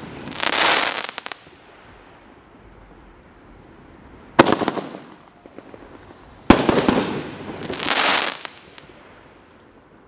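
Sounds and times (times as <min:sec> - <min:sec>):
fireworks crackling pops: 0:00.0 - 0:03.1, 0:04.2 - 0:10.0
fireworks bangs: 0:04.3 - 0:09.2.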